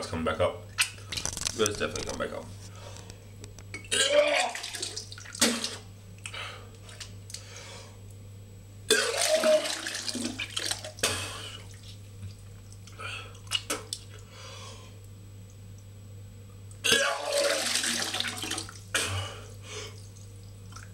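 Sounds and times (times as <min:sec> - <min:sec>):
man retching and vomiting: 0:03.7 - 0:05.9, 0:08.9 - 0:11.7, 0:16.8 - 0:19.5
vomit splashing into water: 0:08.9 - 0:11.2.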